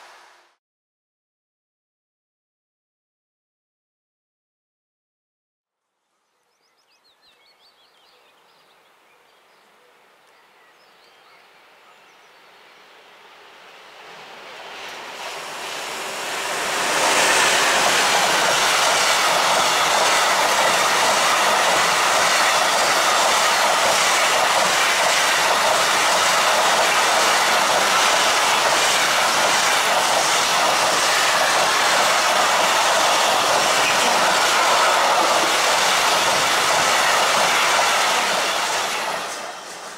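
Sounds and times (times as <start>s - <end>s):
freight train passing: 0.0s - 0.6s, 10.5s - 39.9s.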